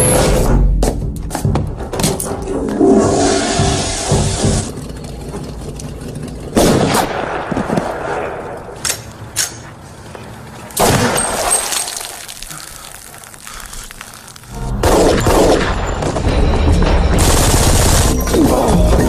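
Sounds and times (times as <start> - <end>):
dense gunfire: 6.6 - 8.6, 14.8 - 16.2, 17.2 - 18.2
dramatic music: 14.5 - 19.0
gunshot: 14.8 - 16.2.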